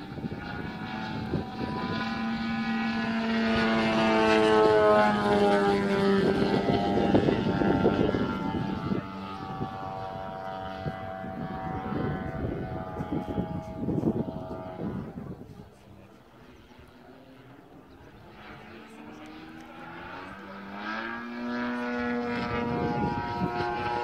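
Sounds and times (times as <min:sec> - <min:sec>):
model plane engine and propeller: 0:00.0 - 0:24.0.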